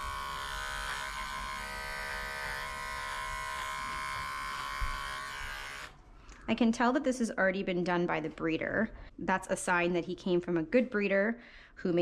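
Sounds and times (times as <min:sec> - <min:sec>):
electric clippers buzzing: 0:00.0 - 0:06.0.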